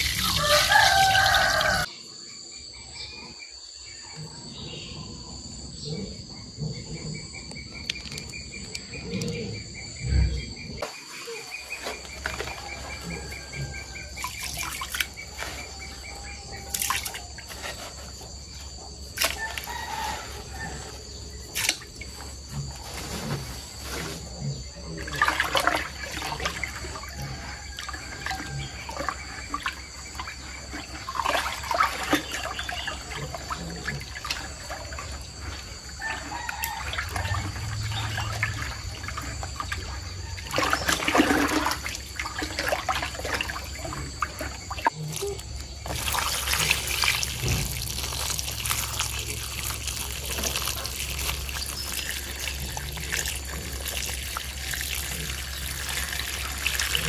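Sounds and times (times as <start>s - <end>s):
water pouring into plastic bucket: 0.0s - 1.9s, 40.4s - 44.9s, 45.8s - 57.0s.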